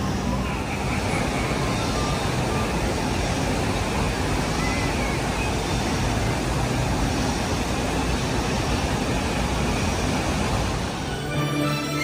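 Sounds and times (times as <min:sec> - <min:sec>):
hiss: 0:00.0 - 0:11.3.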